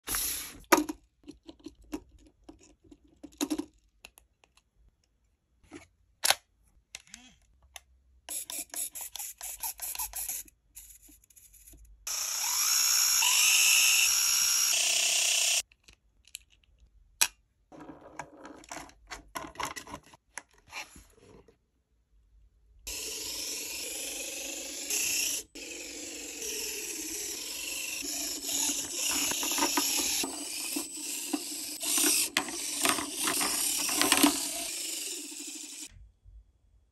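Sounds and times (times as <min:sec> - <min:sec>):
toy car motor whining: 0:08.3 - 0:15.6, 0:22.9 - 0:35.9.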